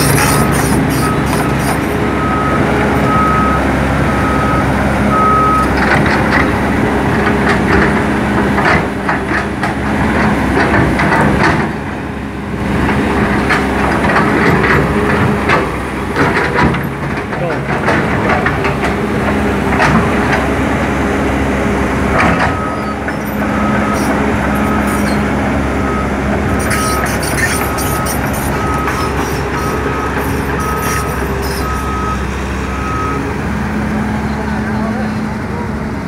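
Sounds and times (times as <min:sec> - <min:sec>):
steel tracks clanking: 0:00.0 - 0:03.4, 0:05.6 - 0:20.8, 0:21.9 - 0:32.4
travel alarm beeping: 0:00.0 - 0:05.8, 0:22.5 - 0:25.2, 0:25.8 - 0:33.3
excavator engine drone: 0:00.0 - 0:36.0.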